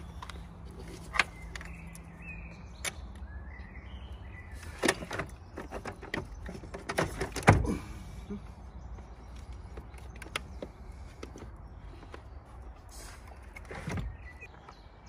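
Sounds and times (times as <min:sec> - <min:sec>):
plastic and metal clunks: 0:04.7 - 0:07.8.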